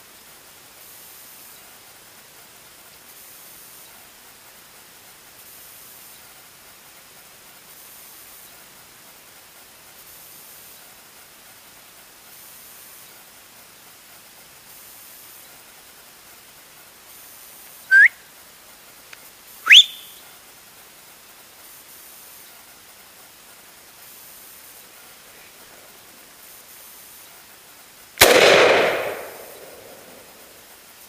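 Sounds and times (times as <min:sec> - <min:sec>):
faint steady hiss: 0:00.0 - 0:31.0
sharp rising whistles: 0:17.9 - 0:18.2, 0:19.6 - 0:20.2.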